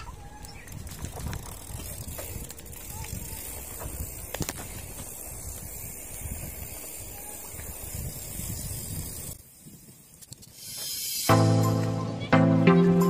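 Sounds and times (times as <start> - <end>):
wind buffeting microphone: 0.0 - 10.1.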